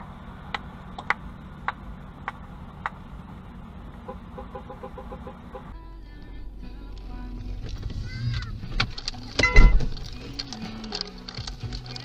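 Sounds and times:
low cabin hum: 0.0s - 12.0s
turn signal relay ticking: 3.9s - 12.0s.

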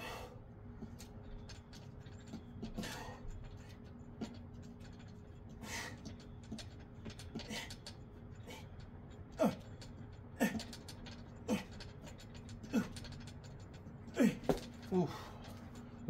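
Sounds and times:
man breathing hard: 0.0s - 0.5s, 2.8s - 3.4s, 5.5s - 6.3s, 14.2s - 15.8s
man grunting with strain: 9.4s - 9.7s, 12.6s - 13.1s, 14.1s - 15.5s.

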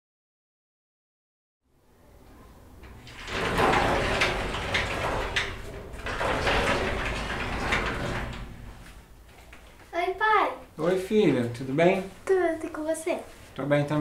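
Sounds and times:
shop door scraping and rattling: 2.7s - 9.6s.

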